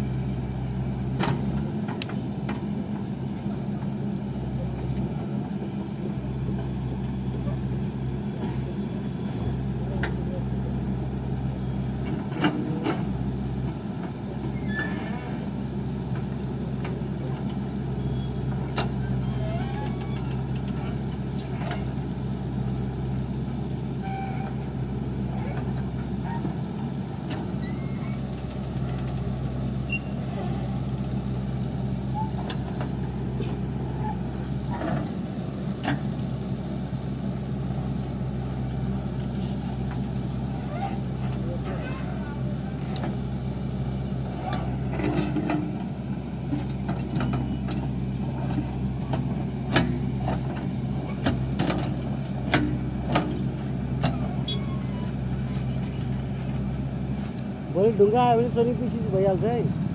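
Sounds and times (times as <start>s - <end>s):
diesel engine running: 0.0s - 59.9s
backhoe digging soil: 11.6s - 57.7s.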